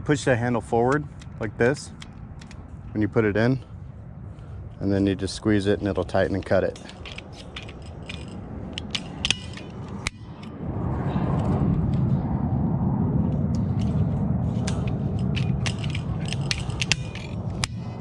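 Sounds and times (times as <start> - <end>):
steady low rumble: 0.0 - 18.0
cable-tie tool clicking: 5.8 - 10.5, 14.6 - 18.0
tool snapping cable tie: 5.9 - 10.5, 14.6 - 18.0.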